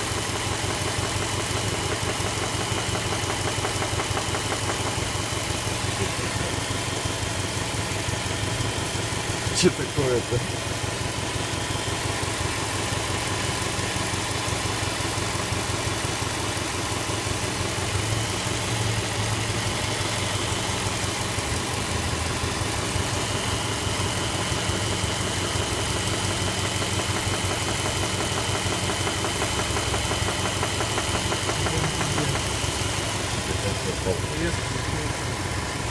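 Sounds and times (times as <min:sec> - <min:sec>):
car engine idling: 0:00.0 - 0:35.9
rapid knock inside engine: 0:00.1 - 0:08.3, 0:24.0 - 0:35.9.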